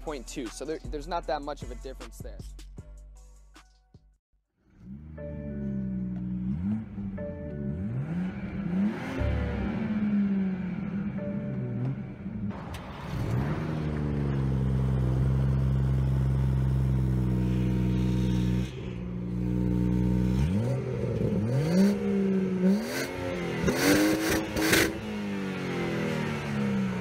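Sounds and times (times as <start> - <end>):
car engine revving: 4.6 - 27.0
exhaust cracks: 7.8 - 27.0.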